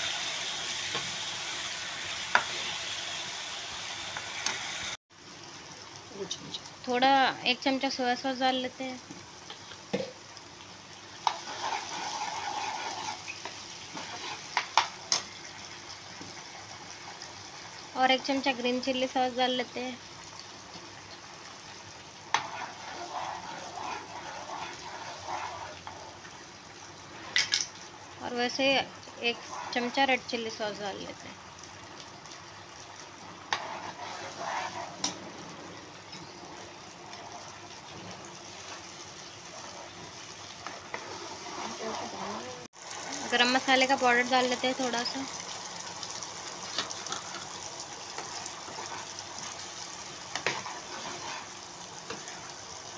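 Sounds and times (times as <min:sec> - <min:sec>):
gravy sizzling in wok: 0:00.0 - 0:52.9
spoon stirring in a pan: 0:11.2 - 0:17.3, 0:22.2 - 0:27.7, 0:29.0 - 0:30.2, 0:33.3 - 0:37.8, 0:38.4 - 0:42.5, 0:44.6 - 0:52.9
spoon stirring: 0:22.4 - 0:25.9, 0:50.3 - 0:52.5.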